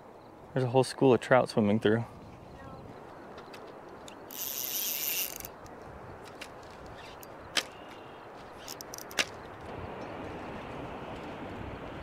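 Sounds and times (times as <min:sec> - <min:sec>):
wind noise: 0:01.8 - 0:12.0
small ticks: 0:03.3 - 0:08.0, 0:08.6 - 0:09.3
fishing reel clicks: 0:04.1 - 0:05.7, 0:08.6 - 0:09.3.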